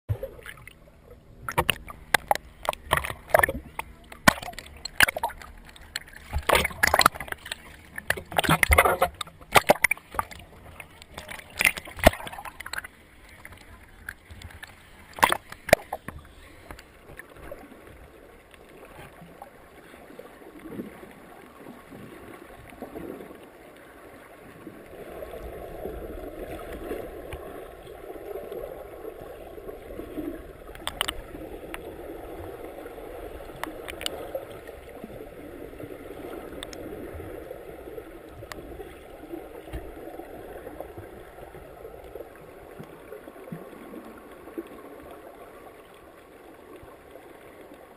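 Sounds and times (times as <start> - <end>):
muffled underwater water wash: 0.1 - 47.9
sharp splashes: 1.4 - 10.4, 11.0 - 12.9, 14.6 - 16.1
faint clicks: 1.4 - 17.6, 30.2 - 31.9, 33.4 - 34.9, 36.4 - 36.9.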